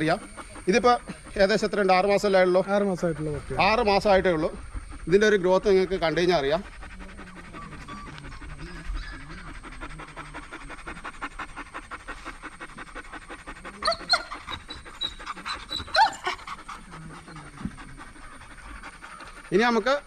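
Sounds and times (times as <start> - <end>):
dogs panting: 0.0 - 20.0
high-pitched dog cries: 13.8 - 16.5.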